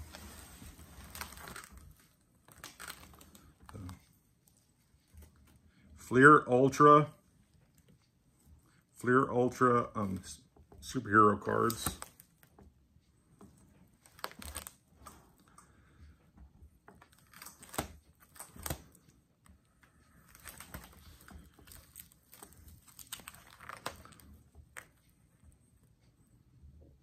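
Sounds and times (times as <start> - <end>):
plastic pages crinkling: 0.0 - 5.5, 10.9 - 12.6, 13.9 - 15.5, 17.0 - 19.1, 19.8 - 25.1.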